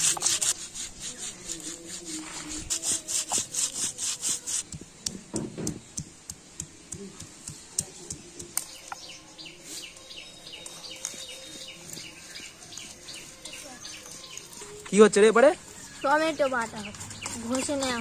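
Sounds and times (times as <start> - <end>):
stone roller rasping on stone: 0.0 - 4.8, 16.8 - 18.0
stone tapping on stone: 4.6 - 9.1.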